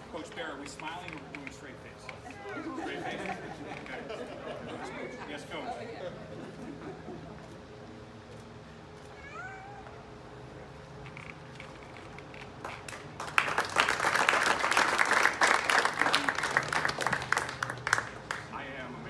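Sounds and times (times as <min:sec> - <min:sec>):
audience applause: 0:12.6 - 0:18.5.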